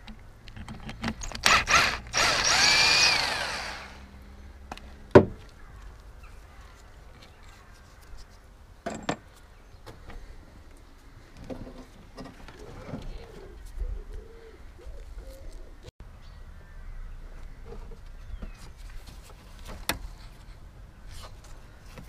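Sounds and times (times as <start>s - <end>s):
power tool whirring: 1.2s - 4.2s.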